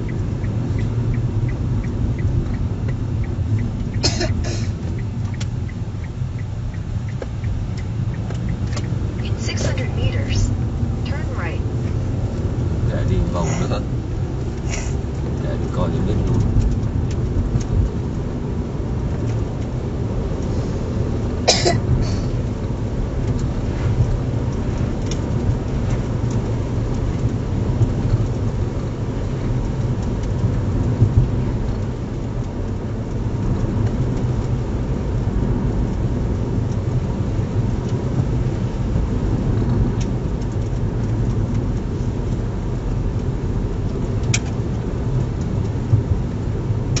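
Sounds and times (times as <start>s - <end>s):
car engine and road noise: 0.0s - 47.0s.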